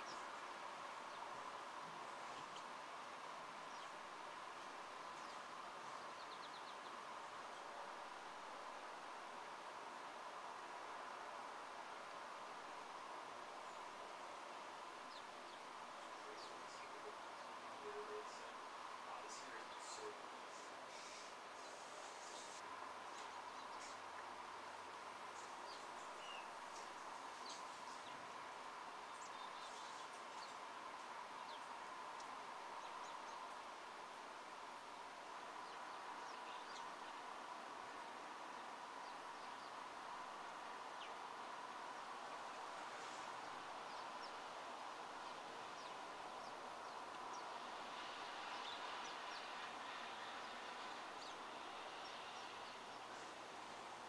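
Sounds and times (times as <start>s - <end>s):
faint steady hiss: 0.0s - 54.0s
sparrows chirping: 4.6s - 7.0s, 15.0s - 24.2s, 25.3s - 28.4s, 29.0s - 30.7s, 31.3s - 33.5s, 35.6s - 37.2s, 42.2s - 44.4s, 45.2s - 53.3s.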